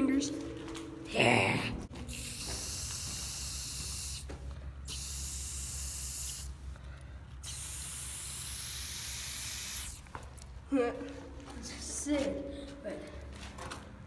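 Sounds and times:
spray paint can hissing: 2.1s - 6.6s, 7.4s - 10.1s.

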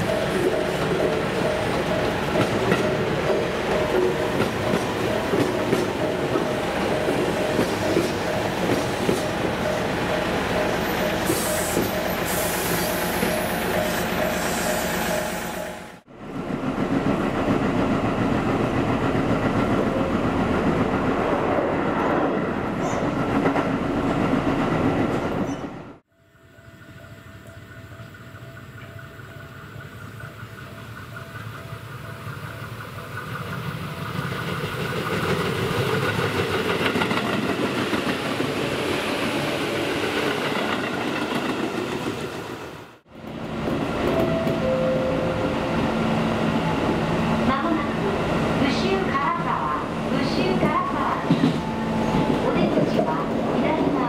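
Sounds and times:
train wheels clacking: 0.0s - 15.7s
train running rumble: 0.0s - 21.8s
level crossing bell ringing: 44.2s - 46.0s.

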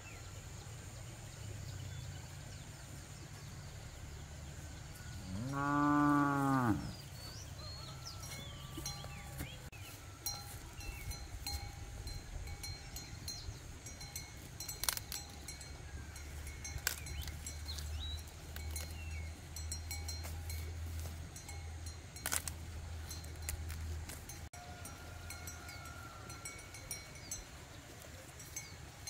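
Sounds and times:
cow bell tinkling: 7.6s - 29.0s
corn ears snapping off stalks: 14.7s - 15.4s, 16.7s - 19.1s, 22.2s - 22.6s.

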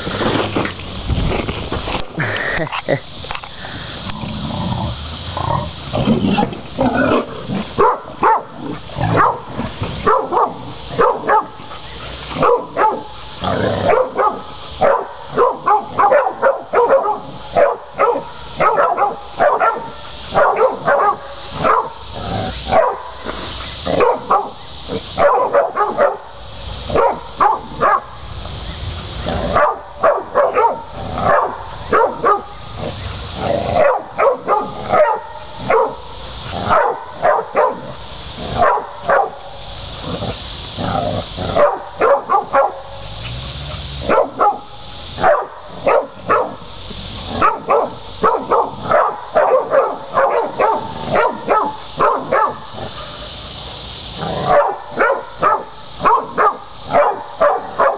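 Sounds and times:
dogs barking: 6.8s - 13.2s, 13.8s - 23.2s, 23.8s - 28.2s, 29.4s - 33.0s, 33.7s - 39.5s, 41.2s - 43.3s, 44.0s - 53.3s, 54.3s - 57.9s.

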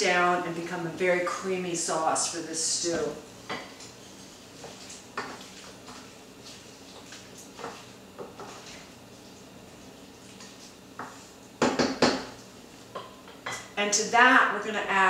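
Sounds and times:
wooden spatula knocking pan: 11.0s - 12.4s.

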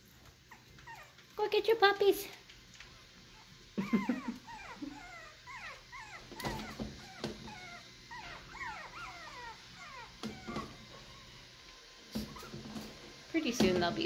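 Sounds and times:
puppies squeaking and whimpering: 0.4s - 1.2s, 3.3s - 11.5s, 12.2s - 12.8s.

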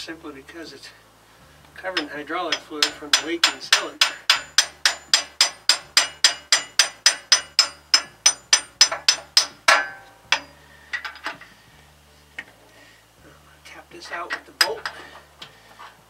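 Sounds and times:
hammer striking steel bolt: 2.0s - 11.4s.

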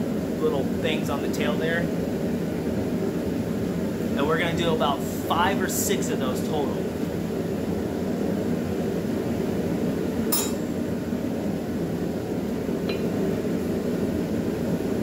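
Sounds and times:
metallic clink of tools: 10.3s - 10.8s.

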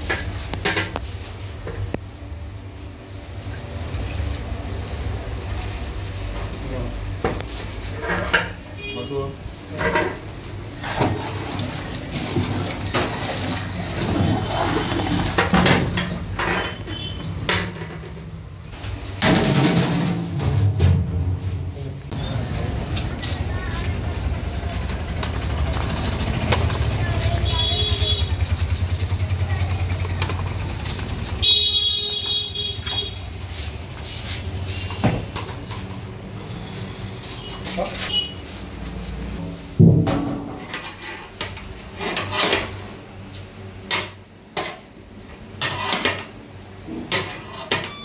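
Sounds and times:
water pouring and splashing: 3.2s - 6.3s, 9.7s - 16.4s
vehicle horn: 8.7s - 9.3s, 16.6s - 17.3s, 27.3s - 28.5s, 31.4s - 33.3s, 37.4s - 38.4s
engine running: 24.0s - 31.4s.

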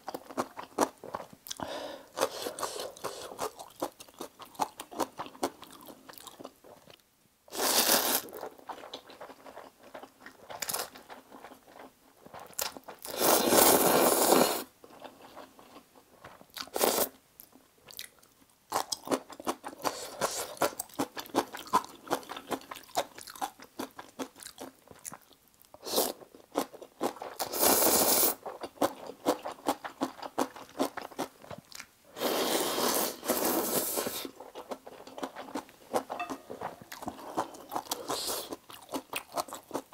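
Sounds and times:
loud slurping of noodles: 7.5s - 8.3s, 13.1s - 14.7s, 27.4s - 28.4s, 32.1s - 34.4s.

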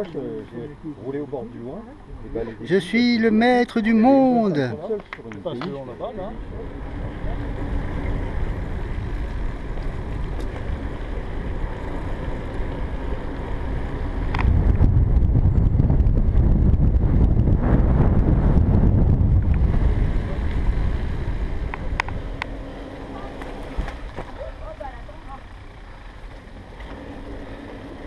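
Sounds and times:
wind rushing over microphone: 6.3s - 24.2s.

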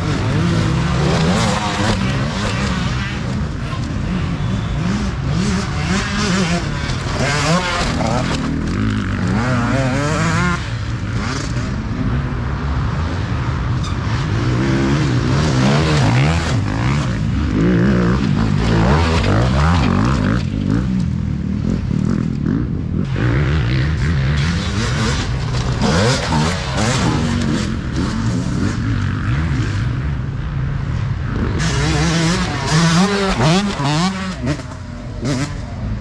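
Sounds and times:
motorbike engine revving: 0.0s - 11.8s, 21.6s - 30.0s, 31.4s - 36.0s.

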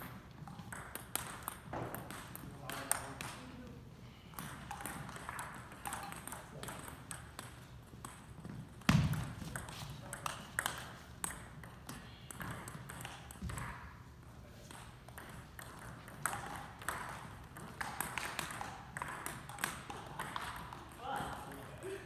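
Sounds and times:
table tennis ball clicking: 0.4s - 3.4s, 14.7s - 21.0s.

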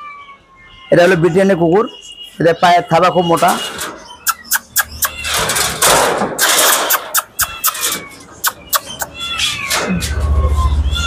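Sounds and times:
wire cage rattling: 3.4s - 10.6s.

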